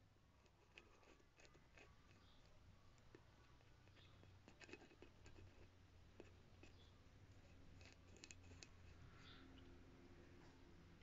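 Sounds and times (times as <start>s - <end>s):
paintbrush scratching and clicking: 0.4s - 9.1s.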